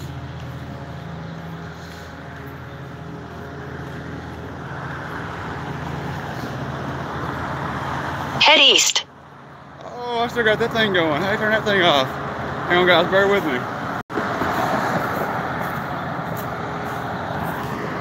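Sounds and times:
cars passing: 0.0s - 18.0s.

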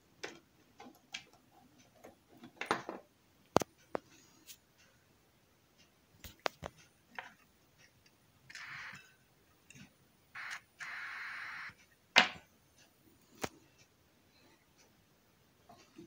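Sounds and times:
steady hiss through speaker: 0.0s - 16.0s.

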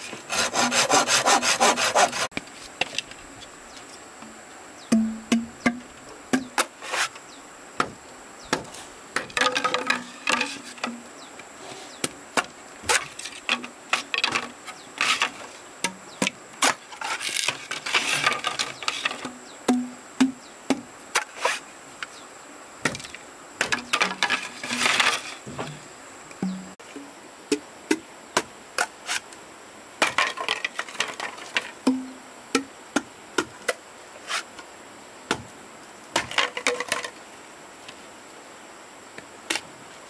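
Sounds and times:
wood chopping knocks: 4.9s - 6.7s, 7.8s - 10.0s, 19.7s - 20.8s
wood scraping and splintering: 16.6s - 19.2s, 23.7s - 25.8s.

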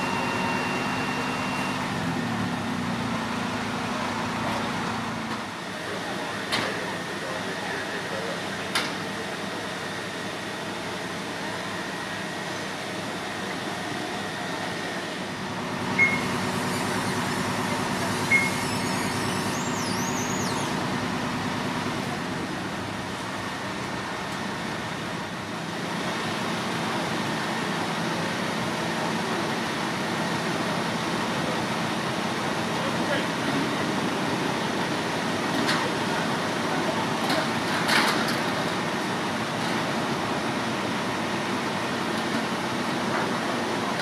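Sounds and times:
short high beeps: 0.0s - 1.9s, 16.0s - 16.4s, 18.2s - 20.7s
fire engine drone: 0.0s - 44.0s.

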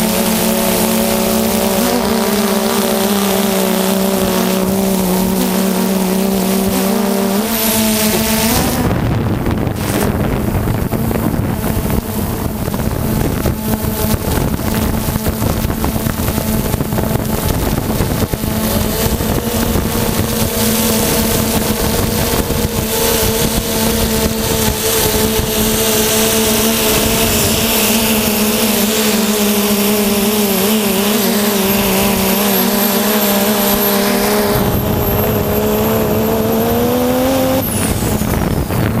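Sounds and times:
drone motors humming: 0.0s - 39.0s
rush of air: 37.3s - 39.0s.

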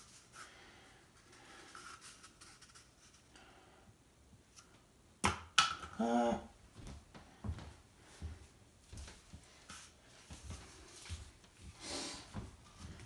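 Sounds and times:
rustling and handling noise: 0.0s - 3.5s, 6.8s - 13.0s.

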